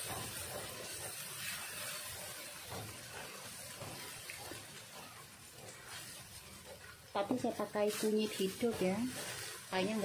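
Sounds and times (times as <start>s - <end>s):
paste sizzling in a wok: 0.0s - 10.0s
spatula stirring strokes: 0.0s - 10.0s.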